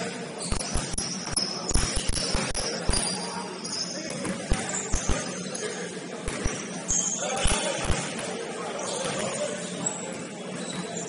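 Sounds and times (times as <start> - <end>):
sneakers squeaking: 0.0 - 11.0
basketball bouncing on court: 0.4 - 3.2, 4.1 - 5.4, 6.3 - 8.2.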